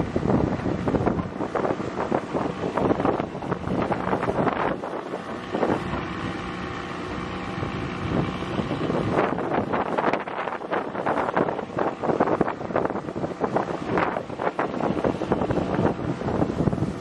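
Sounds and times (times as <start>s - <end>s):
outboard motor drone: 0.0s - 17.0s
wind buffeting microphone: 0.0s - 17.0s.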